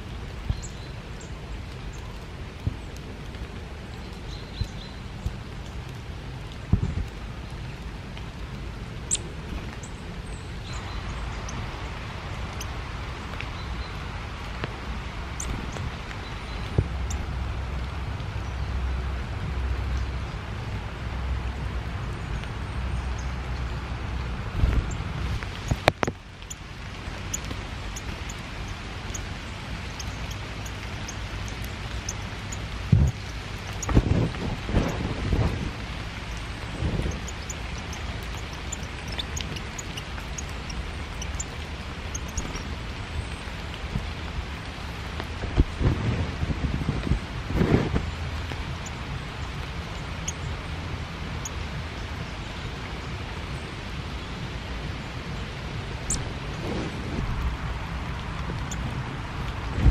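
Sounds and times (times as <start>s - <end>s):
rain hissing: 0.0s - 59.9s
low rumble: 15.5s - 59.9s.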